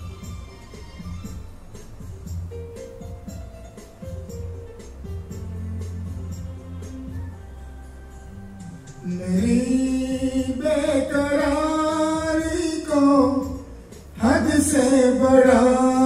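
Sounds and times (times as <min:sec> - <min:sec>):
man singing into a microphone: 0:09.0 - 0:16.0.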